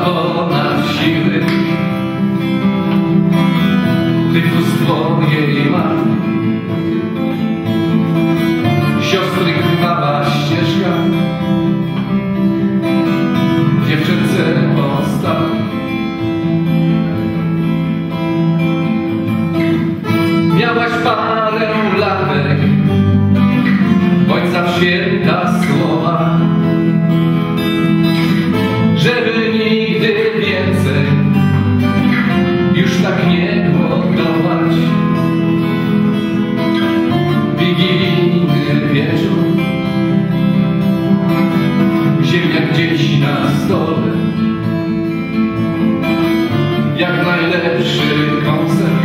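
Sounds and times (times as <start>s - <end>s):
acoustic guitar chords: 0.0s - 49.0s.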